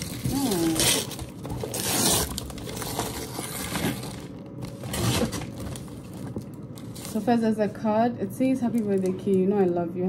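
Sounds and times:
packaging crumpled and torn: 0.0 - 7.3.

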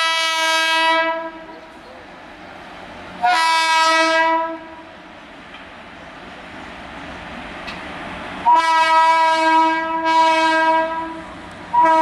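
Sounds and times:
locomotive horn blasts: 0.0 - 1.5, 3.2 - 4.8, 8.4 - 12.0
freight train noise: 0.0 - 12.0.

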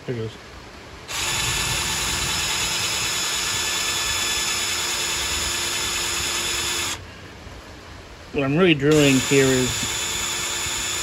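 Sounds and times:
cordless drill whining: 1.1 - 7.0, 8.9 - 11.0.

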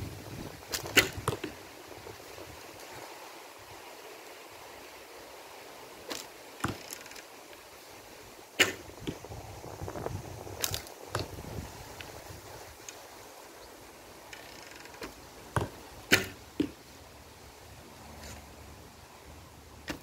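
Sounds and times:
arrow striking target: 0.7 - 1.6, 8.6 - 9.2, 15.6 - 16.8
bowstring snap: 8.6 - 8.8
clicks of arrow being nocked: 8.6 - 8.8, 16.1 - 16.7.

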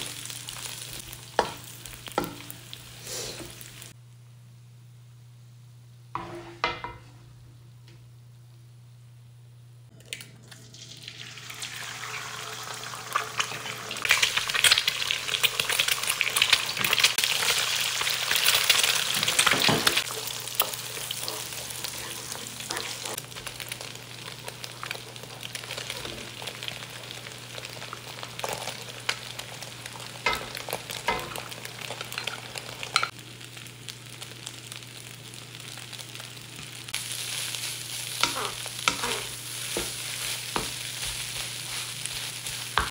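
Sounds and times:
egg and rice sizzling: 0.0 - 4.0, 10.6 - 42.9
spatula scraping and tapping pan: 6.2 - 7.2, 38.2 - 42.9.

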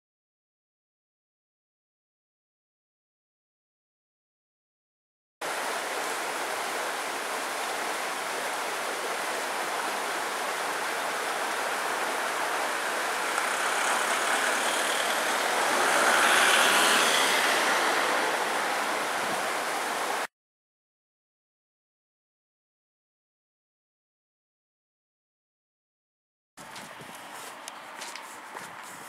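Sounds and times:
faint high whine: 8.9 - 20.3
street traffic: 10.3 - 20.3, 26.6 - 29.0.

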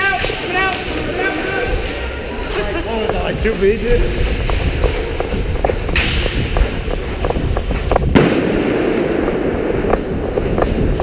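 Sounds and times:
loud crack: 8.1 - 10.2.

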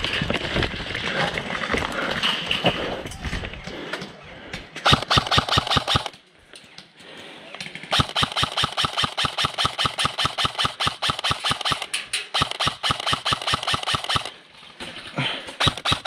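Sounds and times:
airsoft rifle rapid fire: 4.8 - 6.1, 7.9 - 14.4, 15.6 - 16.0.

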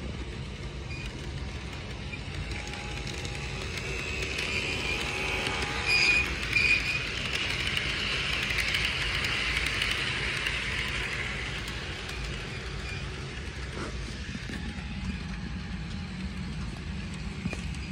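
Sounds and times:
model train running on track: 0.0 - 17.9
high-pitched train toots: 2.2 - 14.3.

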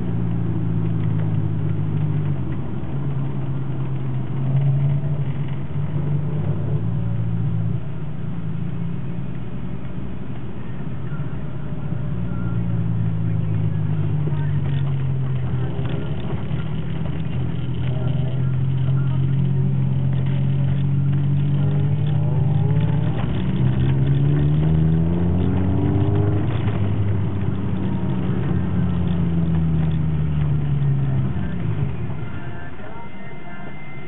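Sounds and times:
car engine from inside cabin: 0.0 - 34.0.

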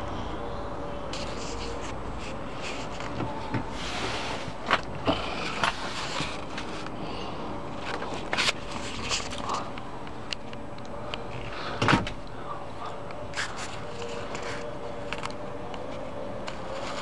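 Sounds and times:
steady background noise: 0.0 - 17.0
light scrape: 1.1 - 4.6.

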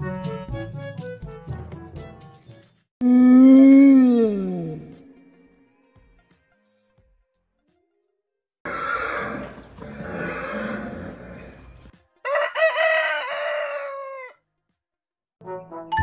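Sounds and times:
rooster crowing: 12.2 - 14.4.

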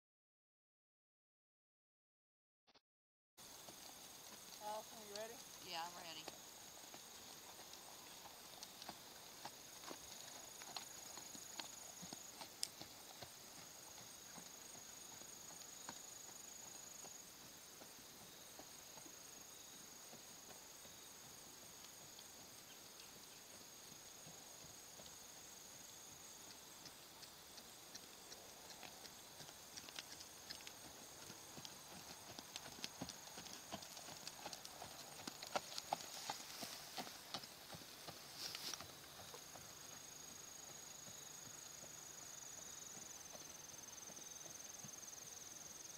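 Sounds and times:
horse hoofbeats on sand: 25.9 - 45.7.

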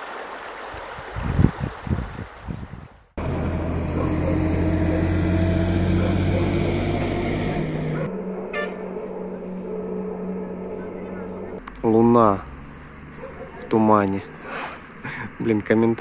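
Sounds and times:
car engine running: 3.2 - 8.1.

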